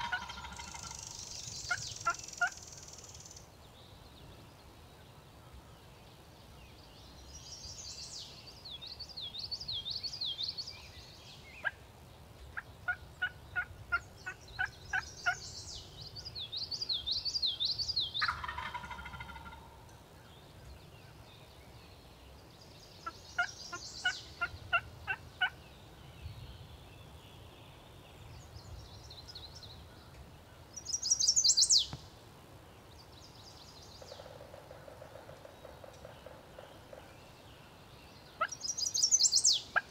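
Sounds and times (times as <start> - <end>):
turkey yelps: 0.0 - 1.0, 18.2 - 19.7
turkey gobble-like call: 0.0 - 1.1, 18.2 - 19.8
songbirds warbling: 0.0 - 39.9.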